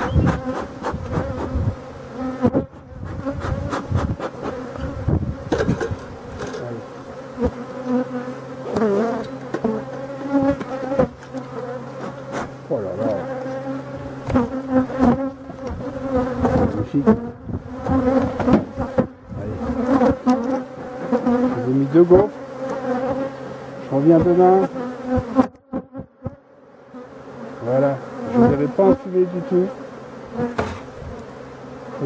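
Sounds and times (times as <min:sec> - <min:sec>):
honeybees buzzing: 0:00.0 - 0:32.0.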